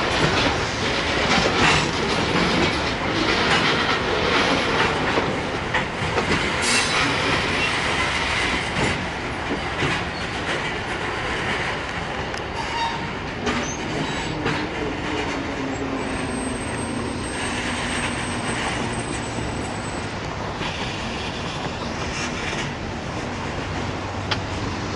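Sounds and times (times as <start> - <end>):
train wheels clacking over rail joints: 0.0 - 24.9
high wheel squeal: 15.6 - 21.8.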